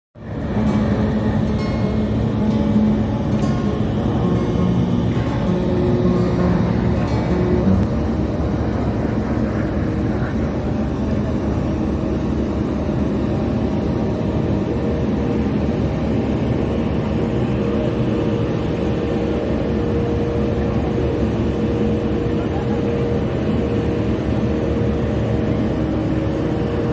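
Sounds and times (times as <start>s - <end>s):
faint steady hums: 0.2s - 26.9s
steady mechanical drone: 0.2s - 26.9s.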